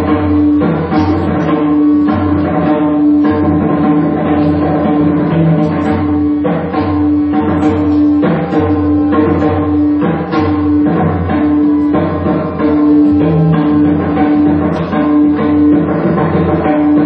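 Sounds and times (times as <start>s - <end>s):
harmonium melody: 7.2s - 17.0s.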